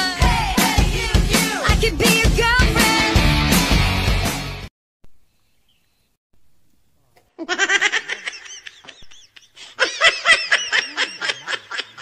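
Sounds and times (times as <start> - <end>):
high-pitched laughter: 7.4 - 12.0.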